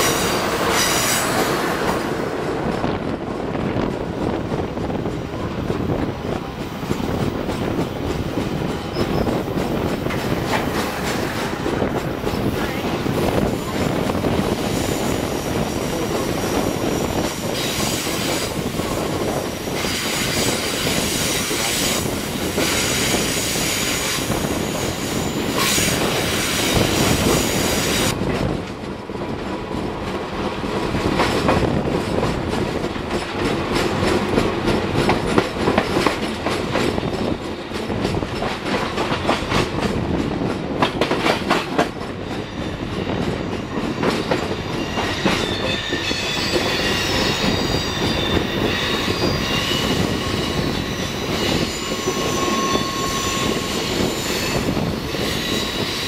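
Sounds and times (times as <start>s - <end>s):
train rumble: 0.0s - 56.0s
wheel flange squeal: 8.9s - 9.3s, 44.7s - 56.0s.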